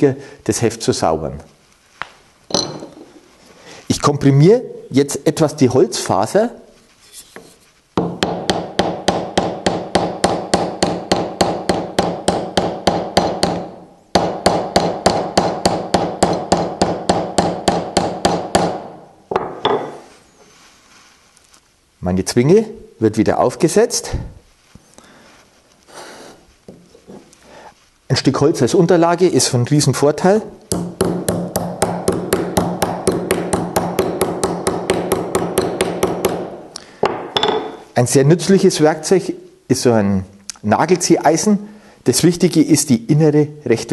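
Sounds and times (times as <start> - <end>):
hammer tapping with metallic ring: 2.5 - 3.0, 37.0 - 37.8.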